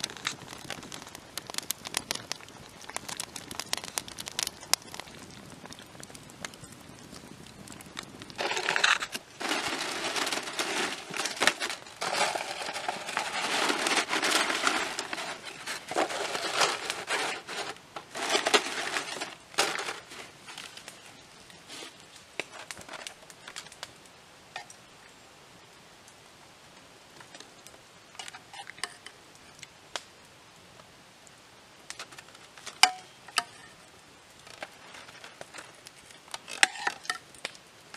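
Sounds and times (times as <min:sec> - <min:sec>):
plastic packaging crinkling: 0:08.4 - 0:20.8.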